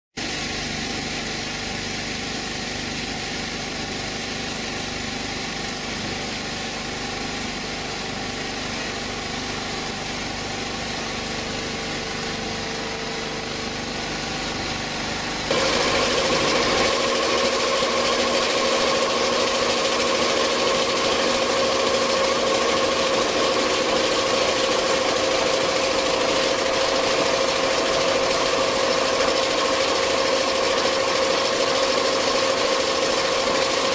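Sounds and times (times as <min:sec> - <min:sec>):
quilting machine running: 0:00.2 - 0:33.9
machine whine: 0:09.9 - 0:33.9.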